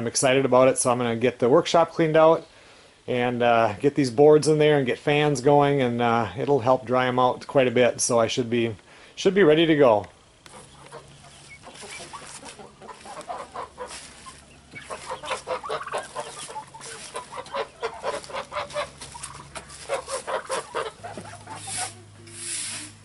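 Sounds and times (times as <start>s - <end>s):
chickens clucking: 9.3s - 23.0s.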